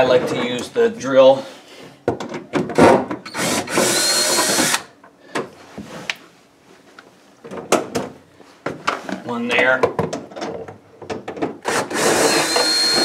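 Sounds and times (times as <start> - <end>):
cordless drill whining: 3.3 - 4.9, 11.7 - 13.0.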